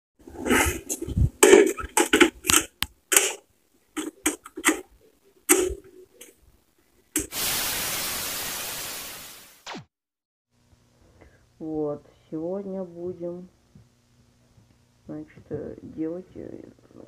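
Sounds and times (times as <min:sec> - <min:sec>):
loud steady hiss: 0:07.2 - 0:09.6.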